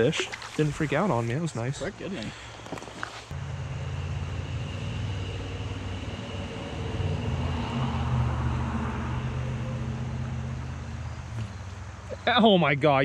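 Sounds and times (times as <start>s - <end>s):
faint high whine: 0.6s - 12.8s
low engine-like hum: 3.3s - 12.3s.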